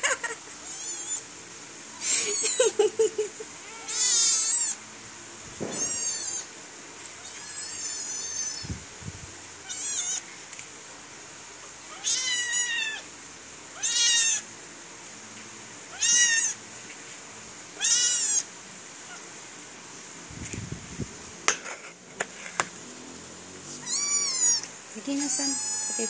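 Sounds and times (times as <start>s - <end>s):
kitten mewing: 3.6s - 4.8s, 5.6s - 6.5s, 9.6s - 10.2s, 17.8s - 18.5s, 23.7s - 26.0s.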